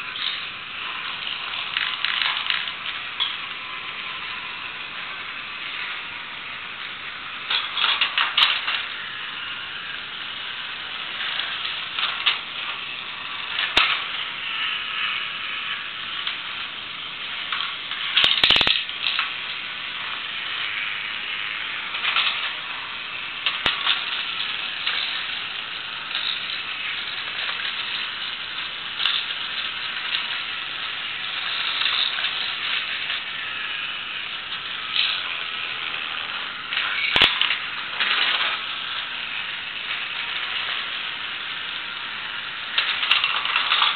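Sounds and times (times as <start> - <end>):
toy motor and gears whirring: 0.0 - 43.9
plastic clicks and clatters: 7.5 - 8.9, 13.5 - 14.2, 17.5 - 19.4, 21.9 - 22.6, 26.1 - 30.5, 34.5 - 39.0, 42.7 - 43.9.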